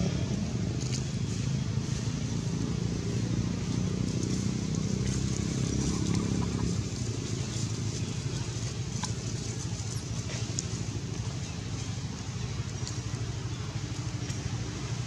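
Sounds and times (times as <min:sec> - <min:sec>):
low motor rumble: 0:00.0 - 0:15.0.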